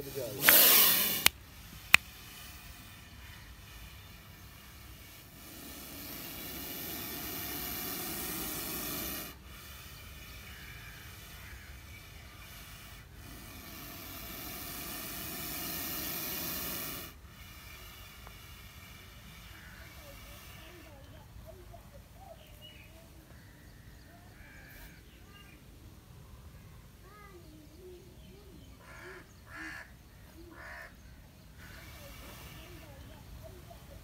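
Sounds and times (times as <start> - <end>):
snake hissing: 0.0 - 23.0, 24.3 - 25.6, 30.5 - 34.0
sharp click: 0.4 - 2.1.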